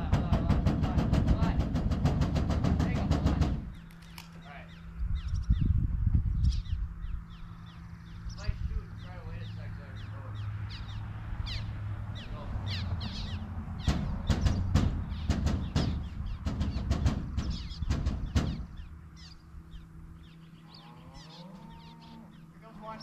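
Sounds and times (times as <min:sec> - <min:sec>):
birds chirping: 0:00.0 - 0:23.0
low motor hum: 0:00.0 - 0:23.0.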